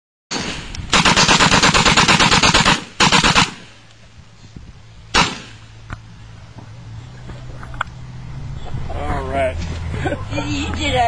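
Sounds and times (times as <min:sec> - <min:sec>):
machine gun firing bursts: 0:00.3 - 0:03.7.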